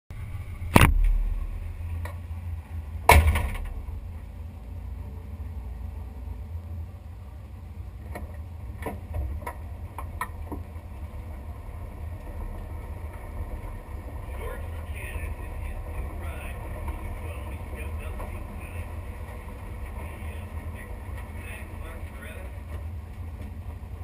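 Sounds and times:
engine idling with low rumble: 0.1s - 24.0s
loud sharp knock: 3.1s - 3.8s.

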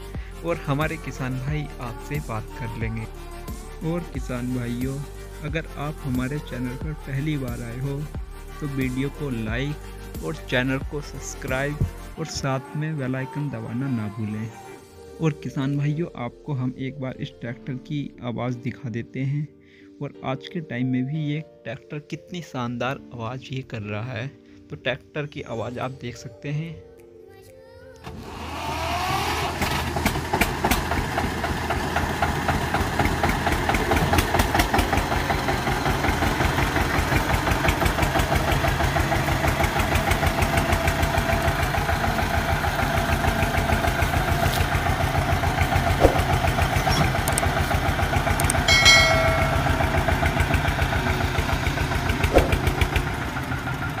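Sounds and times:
tractor diesel engine knocking: 29.6s - 54.0s.

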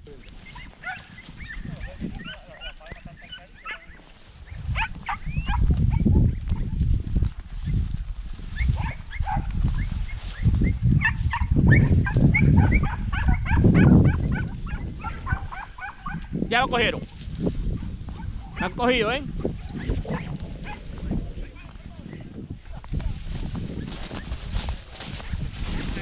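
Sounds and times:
hounds yelping: 0.4s - 6.8s, 8.6s - 10.1s, 10.9s - 16.4s, 17.7s - 22.3s
steady low rumble: 19.2s - 22.6s.

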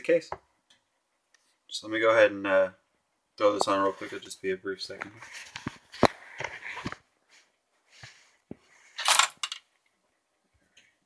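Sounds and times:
rustling: 3.4s - 10.0s.

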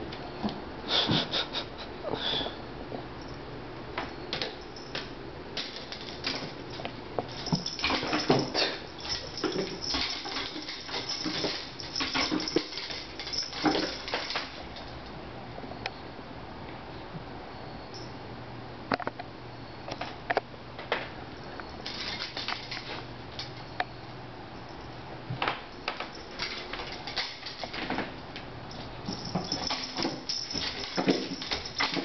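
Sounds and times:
paws knocking and scrabbling: 5.7s - 14.5s, 28.7s - 32.0s.

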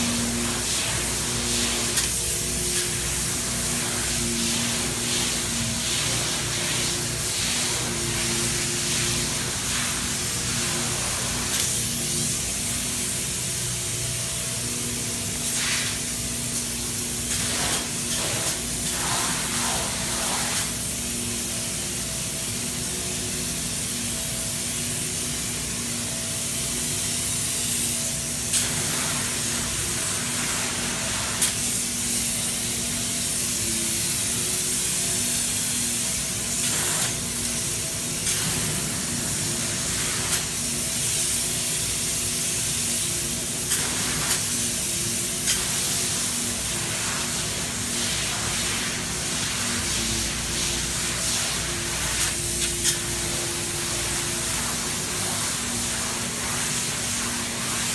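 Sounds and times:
steady hum: 0.0s - 26.6s
spray foam gun hissing: 0.0s - 57.9s.

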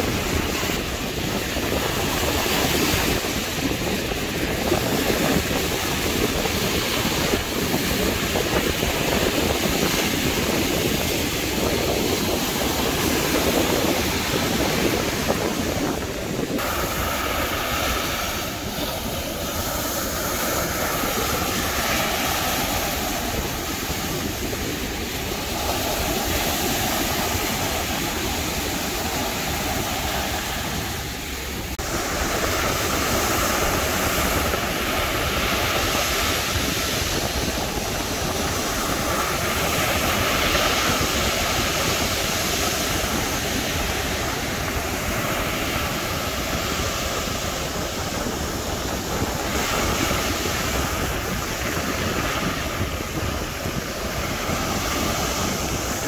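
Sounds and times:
ocean surf breaking on beach: 0.0s - 56.0s.

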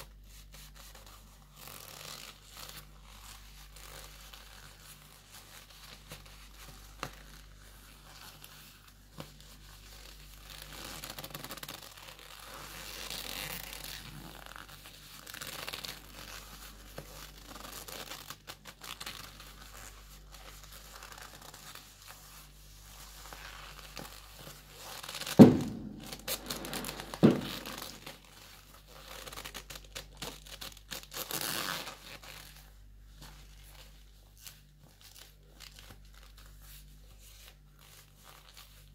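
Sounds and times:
leather gloves creaking: 10.5s - 16.3s, 24.9s - 28.2s
loud thumps: 25.4s - 28.1s.

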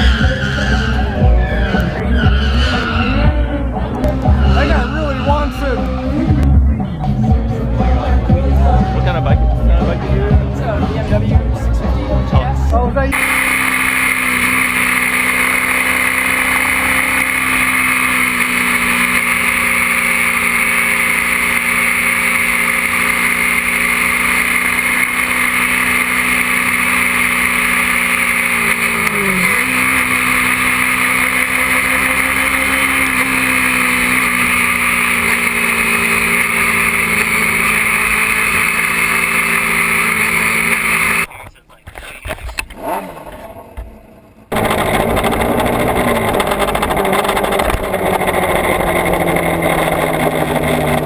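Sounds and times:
motorcycle engine at speed: 13.2s - 41.3s, 42.6s - 51.0s.

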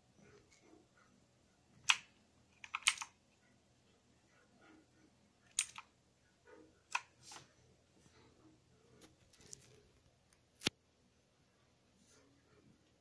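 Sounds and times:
mechanical keyboard keys clicking: 1.8s - 3.1s, 5.5s - 5.9s.

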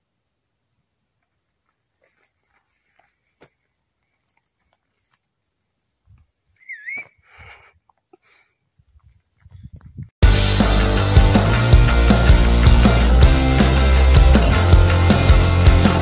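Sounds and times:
short dipping whistle: 6.6s - 7.2s.

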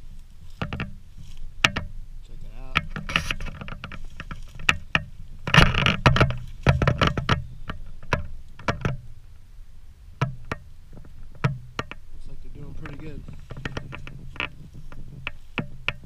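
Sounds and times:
footsteps crunching dry leaves: 0.0s - 1.6s, 4.0s - 5.4s
low steady rumble: 0.0s - 16.0s.

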